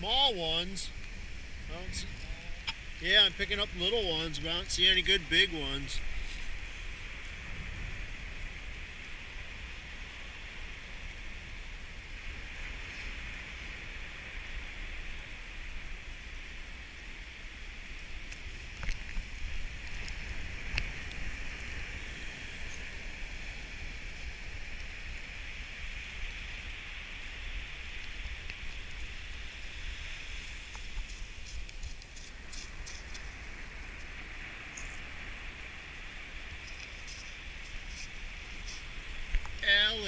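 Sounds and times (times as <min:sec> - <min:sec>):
ocean surf: 0:00.0 - 0:40.0
wind rumbling on microphone: 0:00.0 - 0:40.0.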